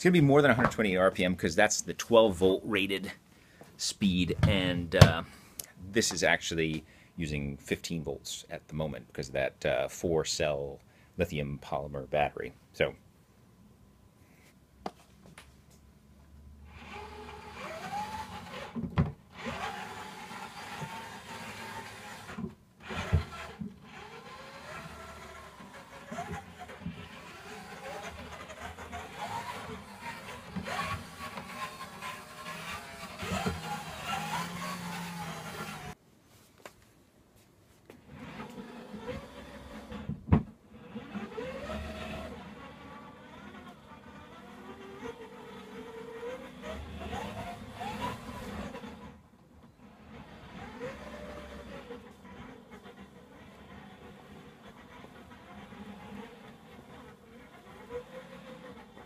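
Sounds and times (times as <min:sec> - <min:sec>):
gearbox motor whine: 0:16.7 - 0:36.0, 0:38.1 - 0:40.1, 0:40.7 - 0:59.0.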